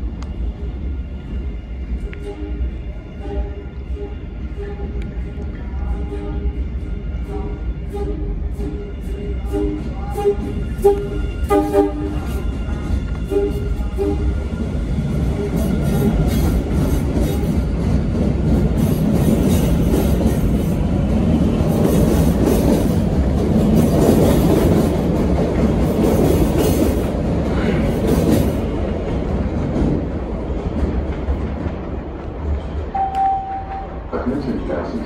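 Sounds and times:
subway train wheels clacking: 0:00.0 - 0:35.0.

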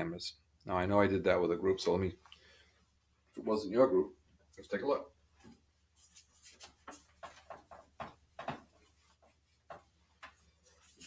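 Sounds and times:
eraser rubbing whiteboard: 0:06.0 - 0:07.4.

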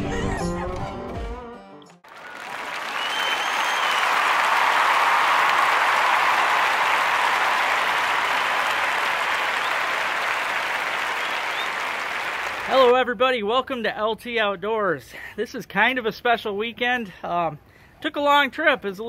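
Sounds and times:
crowd applause: 0:02.1 - 0:12.9.

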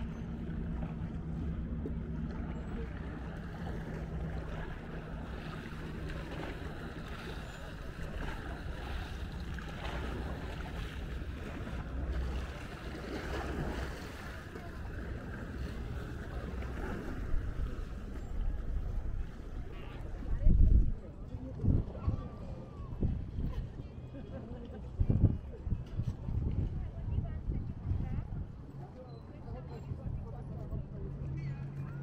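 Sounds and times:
waves lapping at shore: 0:00.0 - 0:21.6
distant motorboat: 0:00.0 - 0:32.0
wind buffeting microphone: 0:00.0 - 0:32.0.

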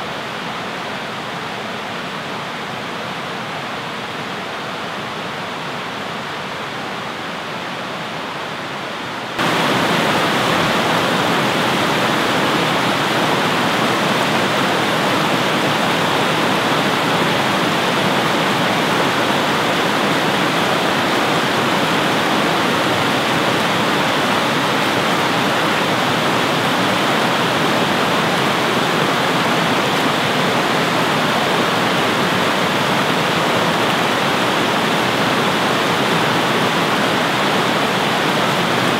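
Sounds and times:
water cascading over rocks: 0:09.4 - 0:38.9.

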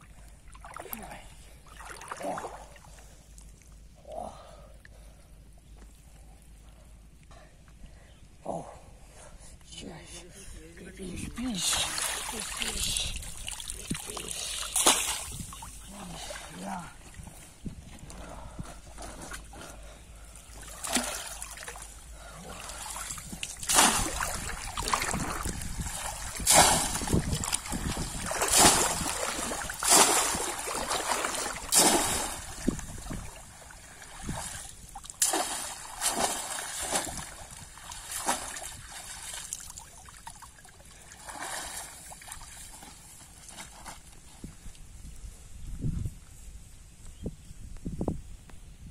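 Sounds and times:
muddy water splashing: 0:00.2 - 0:03.2, 0:11.4 - 0:43.9.

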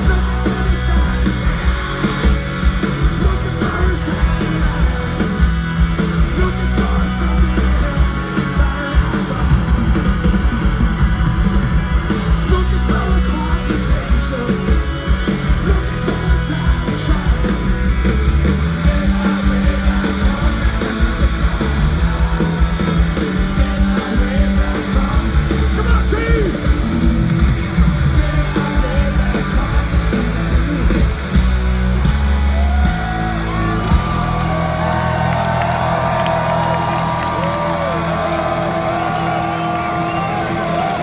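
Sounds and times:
crowd yelling: 0:00.0 - 0:27.0, 0:32.0 - 0:41.0
live rock band playing: 0:00.0 - 0:41.0.

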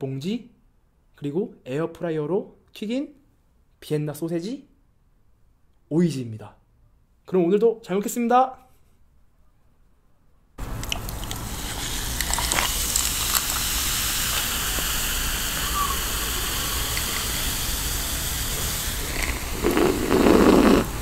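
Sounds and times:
cola fizzing poured into glass: 0:10.9 - 0:20.9
person drinking from a glass: 0:18.4 - 0:20.9.

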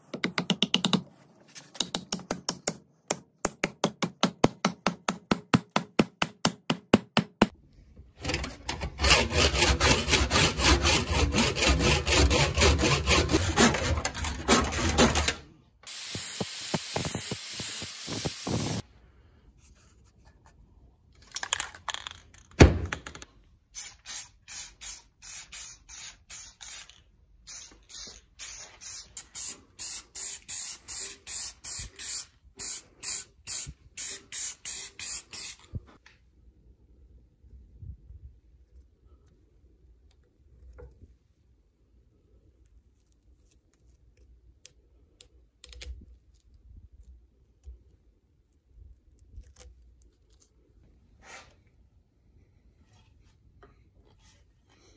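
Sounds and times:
rough scraping: 0:08.2 - 0:15.4
spray can bursts: 0:15.9 - 0:18.8, 0:23.8 - 0:35.6.

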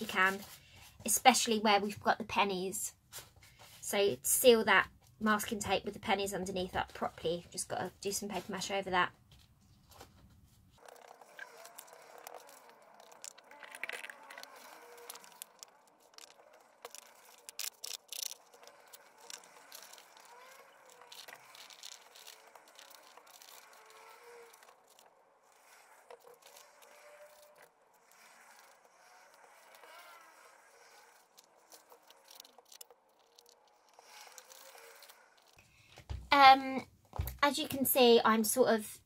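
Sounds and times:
paper crinkling: 0:09.3 - 0:35.6
paintbrush dabbing and scraping: 0:09.4 - 0:35.6
small clicks: 0:10.8 - 0:35.6.

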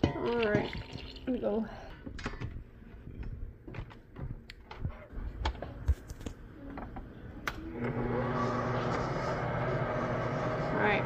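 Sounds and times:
stand mixer motor running: 0:07.7 - 0:11.0.

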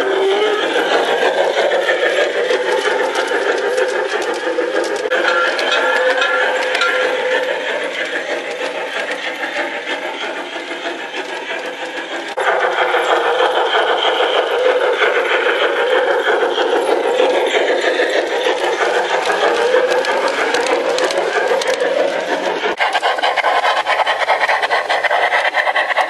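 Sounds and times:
model train wheels clattering: 0:00.0 - 0:26.0.

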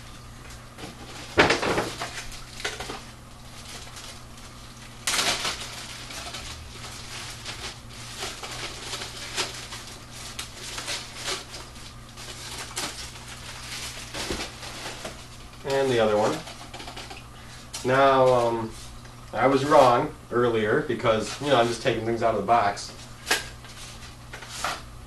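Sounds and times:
plastic bag crinkling: 0:00.9 - 0:20.0.

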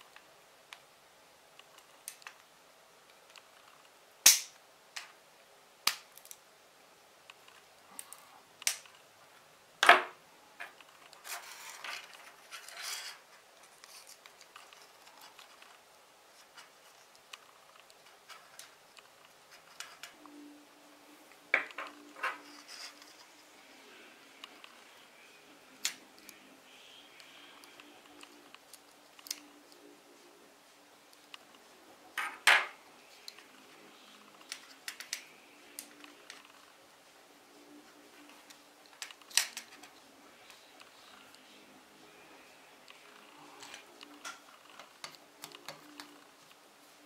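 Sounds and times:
loud snaps: 0:04.2 - 0:04.6
scraping and rustling: 0:10.6 - 0:20.2.

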